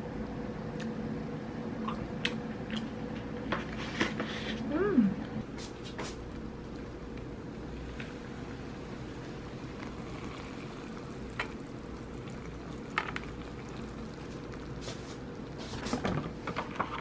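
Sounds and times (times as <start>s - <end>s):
water pouring into cup: 6.7s - 15.8s.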